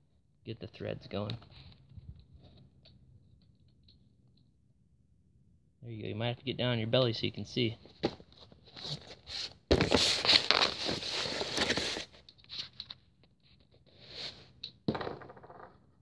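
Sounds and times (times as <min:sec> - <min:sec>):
clothing scraping on cardboard: 0:08.6 - 0:12.1.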